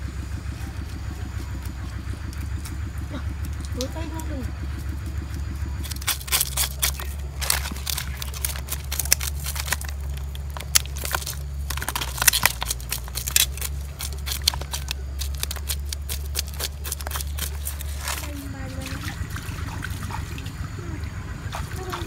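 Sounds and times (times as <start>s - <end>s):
steady low hum: 0.0s - 22.0s
knife scraping fish scales: 5.8s - 18.3s.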